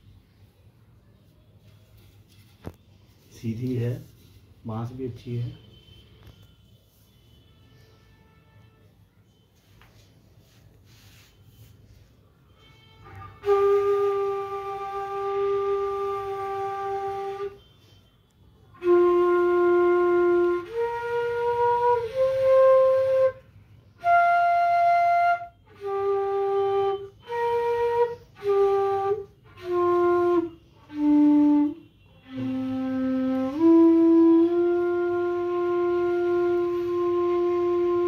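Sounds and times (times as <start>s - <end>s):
bamboo flute melody: 7.7s - 18.0s, 18.7s - 38.0s.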